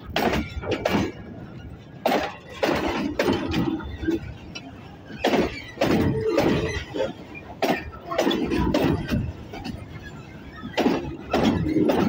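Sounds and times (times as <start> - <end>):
train wheels clanking on rail joints: 0.0 - 12.0
wheel squeal: 3.5 - 12.0.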